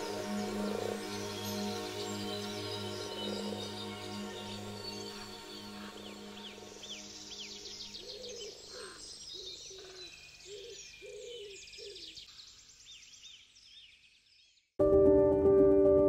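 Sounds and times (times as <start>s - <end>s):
birds chirping and trilling: 0.0s - 14.8s.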